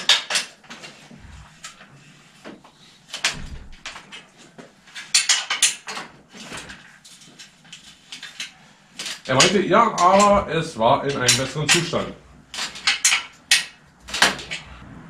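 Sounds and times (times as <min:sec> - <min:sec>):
metallic clicks and knocks of tools: 0:11.1 - 0:14.8.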